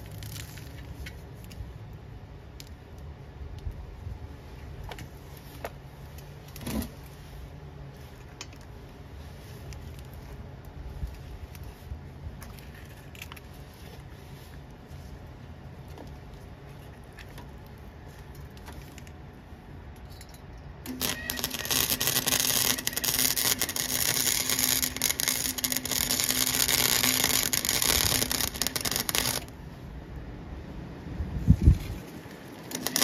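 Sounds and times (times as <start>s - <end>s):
welder arc crackling: 20.8s - 29.6s, 31.8s - 33.0s
welder hum: 20.8s - 29.7s, 31.9s - 33.0s.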